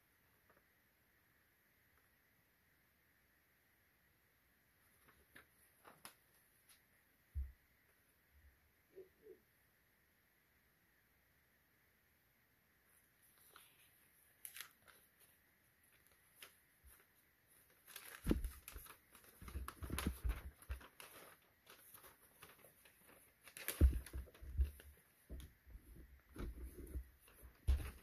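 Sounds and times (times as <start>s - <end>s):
paper rustling and crinkling: 5.0s - 6.8s, 13.2s - 28.0s.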